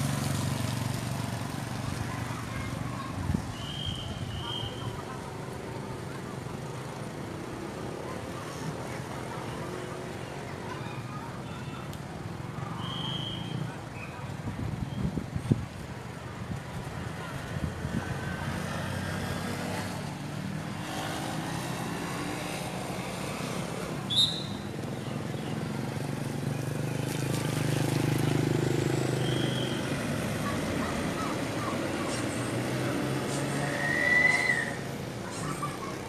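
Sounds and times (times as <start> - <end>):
scooter passing on wet road: 0.0 - 3.2, 16.8 - 36.0
low hum of vehicle engines: 0.0 - 36.0.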